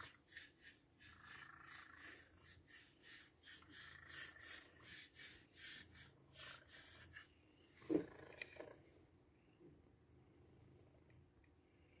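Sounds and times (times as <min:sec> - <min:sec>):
back scratcher scratching cat fur: 0:00.0 - 0:07.3.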